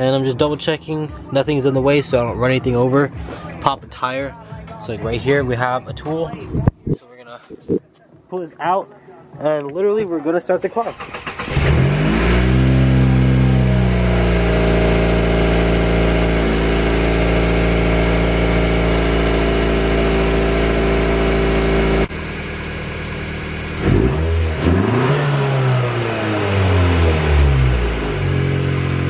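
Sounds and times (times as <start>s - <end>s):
car engine starting and idling: 10.6s - 29.0s
engine revving blips: 11.0s - 22.1s, 23.8s - 29.0s.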